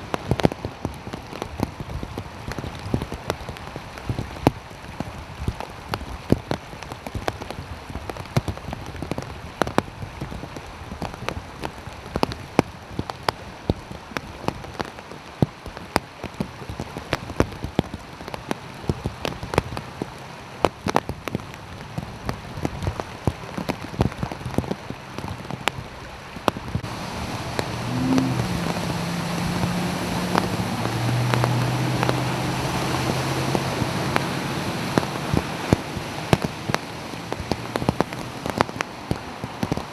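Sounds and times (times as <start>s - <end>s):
large raindrops ticking: 0.0s - 39.9s
steady rain: 0.0s - 39.9s
tyres splashing through water: 0.0s - 39.9s
low engine hum: 18.2s - 39.9s.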